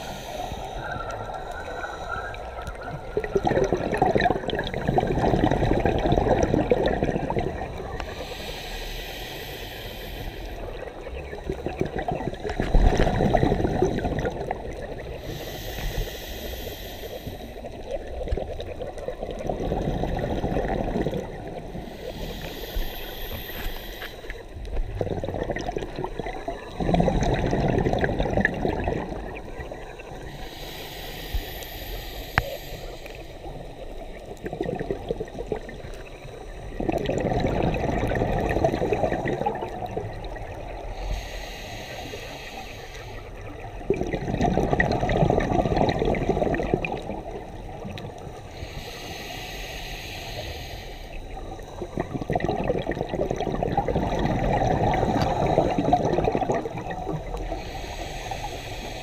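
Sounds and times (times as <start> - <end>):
regulator inhale hiss: 0.0 - 2.8, 7.8 - 11.0, 15.0 - 18.2, 21.2 - 24.8, 29.0 - 34.4, 39.6 - 43.9, 46.9 - 52.3, 54.4 - 59.0
exhaled bubbles burbling: 0.0 - 8.2, 10.6 - 15.3, 17.7 - 22.0, 24.3 - 30.2, 34.1 - 40.9, 43.5 - 48.4, 51.4 - 57.6.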